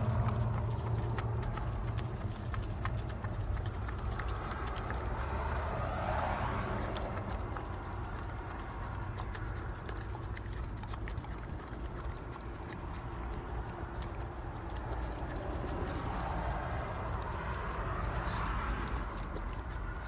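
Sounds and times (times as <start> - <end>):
puppy licking and lapping: 0.0 - 20.0.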